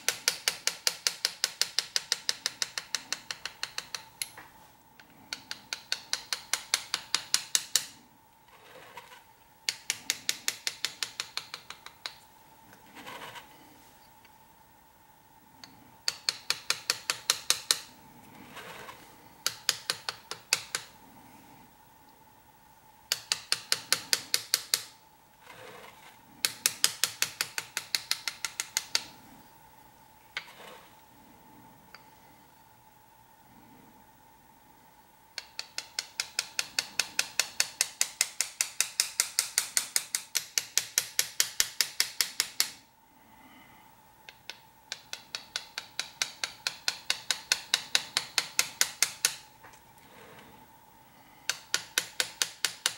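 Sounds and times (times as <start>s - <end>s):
hammer tapping metal chisel: 0.0s - 13.7s, 15.6s - 21.0s, 23.1s - 29.3s, 35.4s - 42.8s, 44.3s - 50.2s, 51.5s - 52.9s.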